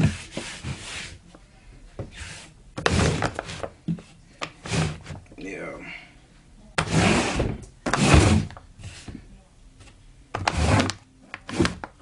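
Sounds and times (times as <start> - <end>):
cardboard boxes scraping: 0.0 - 1.3, 2.1 - 3.7, 6.8 - 9.1, 10.4 - 11.8.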